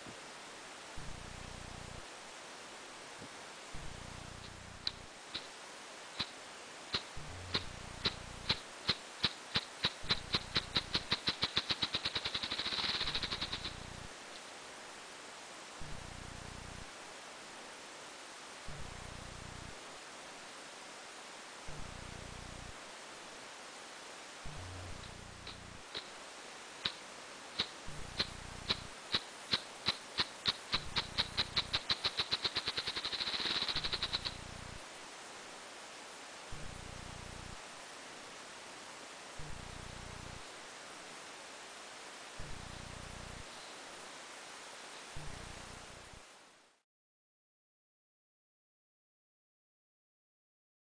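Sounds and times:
grouse wing beats drumming: 4.9s - 5.5s, 6.1s - 14.1s, 24.5s - 26.2s, 26.8s - 34.5s.

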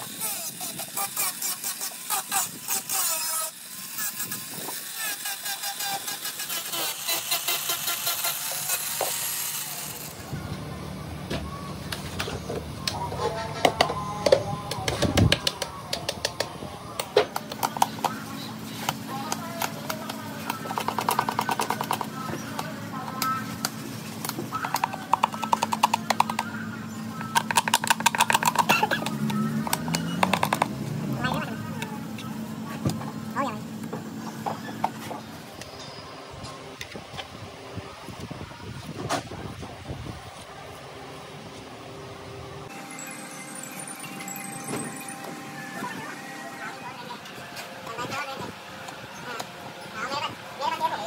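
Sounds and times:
sandpaper rasping on helmet: 0.0s - 9.9s
grinding disc hissing: 0.0s - 10.3s
angle grinder motor whine: 0.0s - 11.4s.

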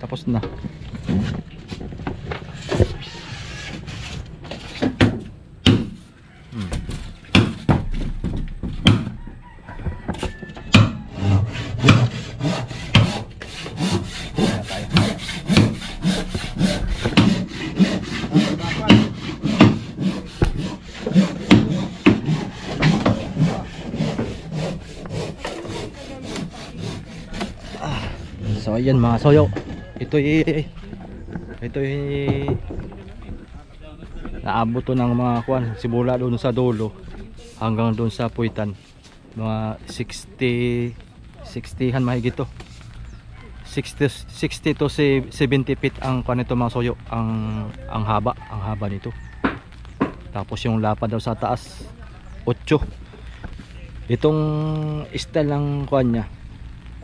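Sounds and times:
hand saw cutting wood: 1.0s - 6.0s, 10.7s - 29.5s.

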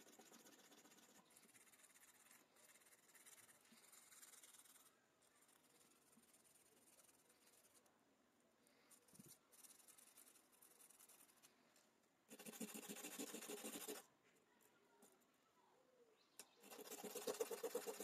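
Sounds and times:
metal scraping on sandpaper: 0.0s - 7.8s, 12.3s - 14.0s.

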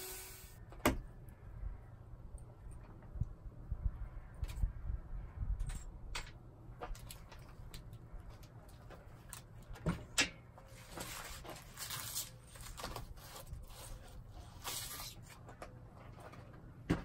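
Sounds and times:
tape tearing loose: 11.6s - 15.3s.

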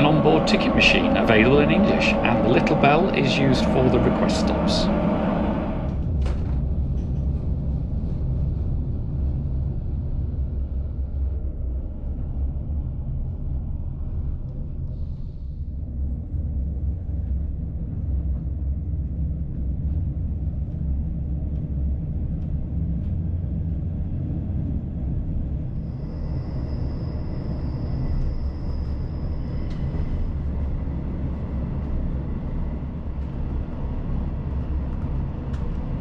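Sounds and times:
thin high whine: 0.0s - 6.0s, 25.8s - 31.0s
train wheels rumbling on track: 0.0s - 36.0s.

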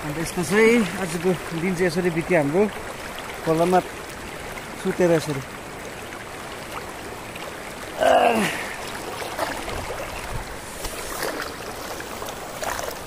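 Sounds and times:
man exclaiming: 8.0s - 8.7s.

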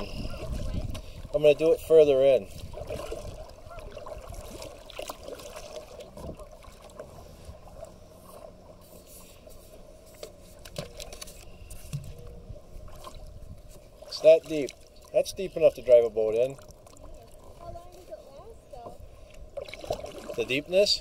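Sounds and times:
water trickling and dripping: 14.1s - 18.1s.

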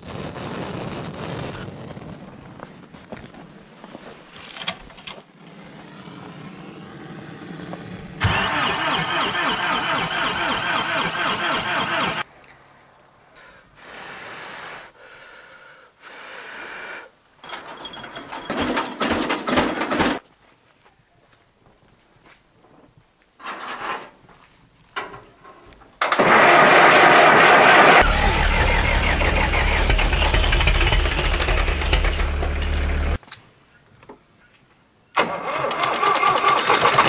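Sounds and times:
blowtorch: 0.0s - 1.8s
diesel tractor engine starting: 7.2s - 12.3s, 26.0s - 33.2s, 35.2s - 37.0s.

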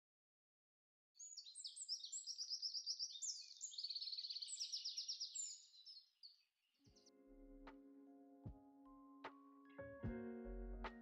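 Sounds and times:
songbird singing: 1.2s - 7.1s.

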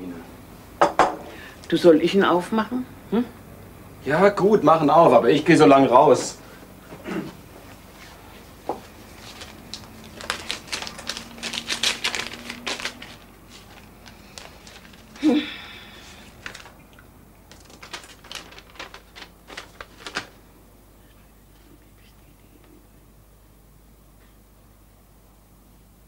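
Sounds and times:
paper rustling and tearing: 8.9s - 16.8s, 17.5s - 20.4s.

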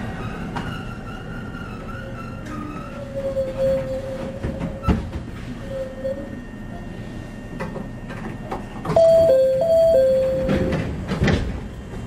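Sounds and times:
low hum of train cab: 0.0s - 12.0s
two-tone electronic chime: 9.0s - 10.7s.

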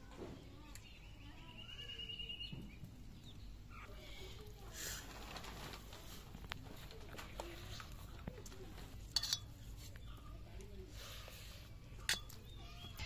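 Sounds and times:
birds calling: 12.2s - 13.0s.

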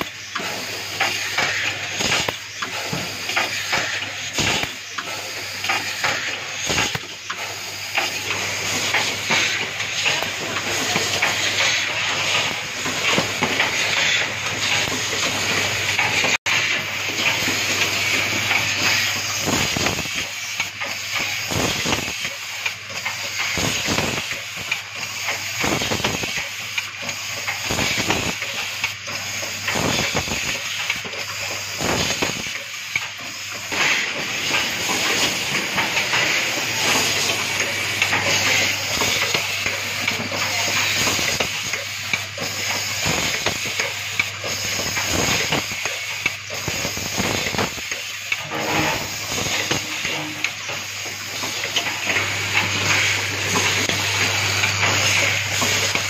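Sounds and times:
compressed air hiss: 49.0s - 50.2s.

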